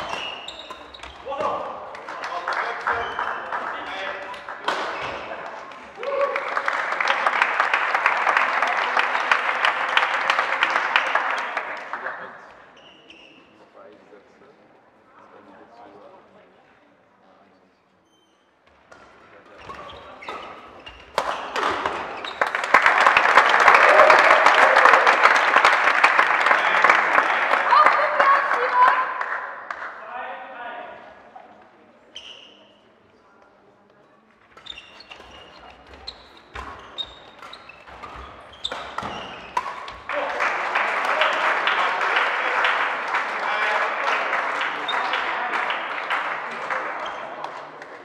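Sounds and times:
shoe squeaks: 0.0 - 1.3, 12.8 - 13.6, 18.0 - 18.8, 19.4 - 21.5, 22.1 - 22.6, 32.1 - 32.9, 34.5 - 39.9
racket hitting shuttlecock: 0.0 - 2.2, 4.3 - 5.3, 18.9 - 22.4, 34.5 - 40.4
spectators clapping and cheering: 0.0 - 12.8, 20.8 - 30.4, 36.6 - 48.0.

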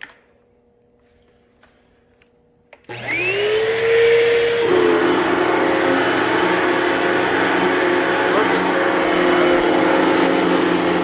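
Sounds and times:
upright vacuum motor whining: 2.8 - 11.0.

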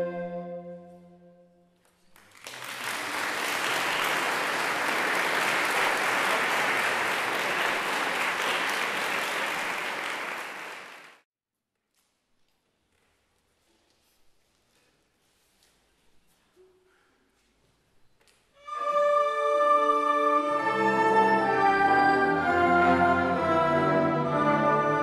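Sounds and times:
audience applause: 2.2 - 11.2
orchestra chord: 18.7 - 25.0.

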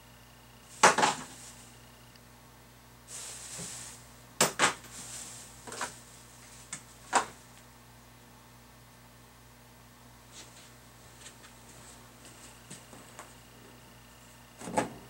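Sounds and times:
scraping rustle: 3.1 - 4.1, 4.8 - 6.9.

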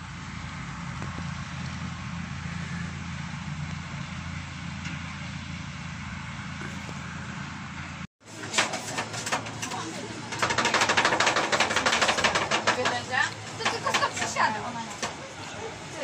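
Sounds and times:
low even hum: 0.0 - 8.1.

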